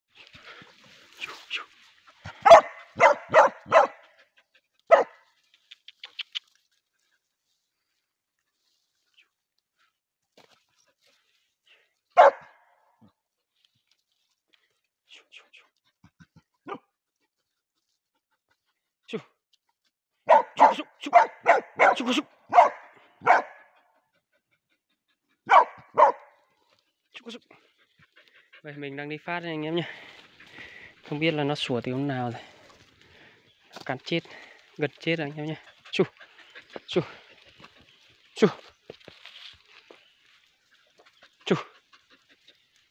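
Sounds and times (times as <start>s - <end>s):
dog barking: 2.3s - 4.1s, 4.9s - 5.3s, 12.2s - 12.8s, 20.2s - 23.8s, 25.4s - 26.4s.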